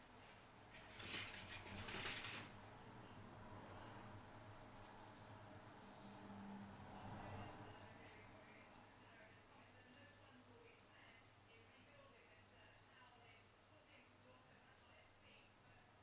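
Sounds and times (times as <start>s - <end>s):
rustling scrape: 0.8s - 2.6s
cricket trilling: 2.2s - 9.7s.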